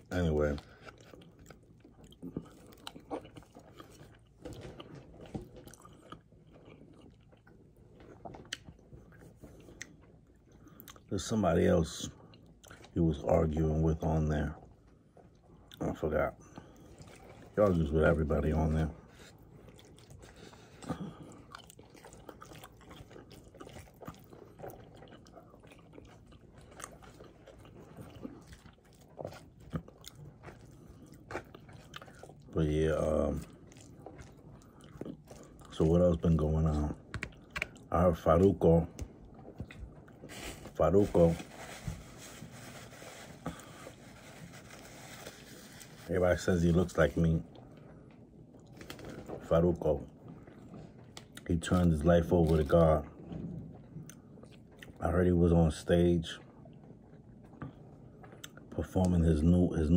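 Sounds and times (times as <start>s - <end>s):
person chewing: 0.6s - 11.1s, 19.1s - 37.9s, 38.9s - 40.8s, 53.7s - 55.0s, 56.7s - 58.7s.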